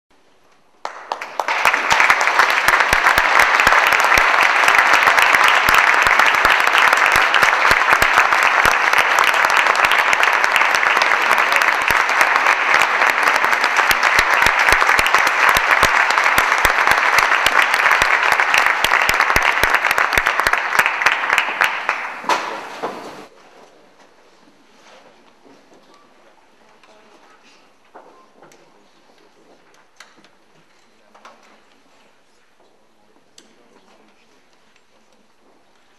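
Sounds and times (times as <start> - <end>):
audience applauding: 0.8 - 22.8.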